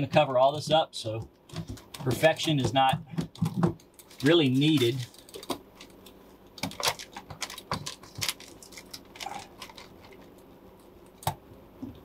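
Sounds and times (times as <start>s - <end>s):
foil mat crinkling: 1.7s - 10.3s.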